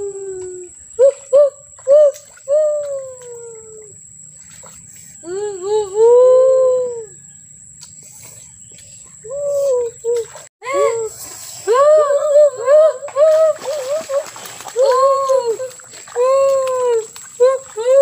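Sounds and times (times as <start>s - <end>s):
children's wordless vocal calls: 9.5s - 18.0s.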